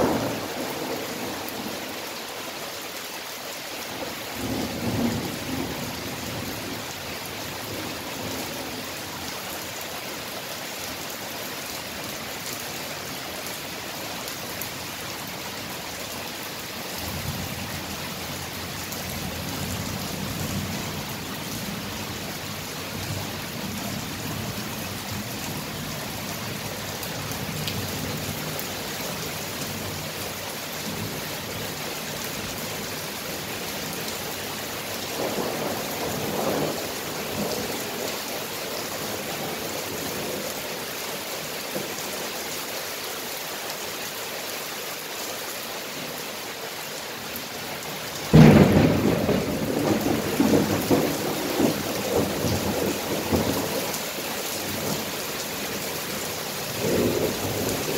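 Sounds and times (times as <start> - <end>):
steady rain: 0.0 - 57.9
thunder rumbling: 48.3 - 53.8, 56.7 - 57.9.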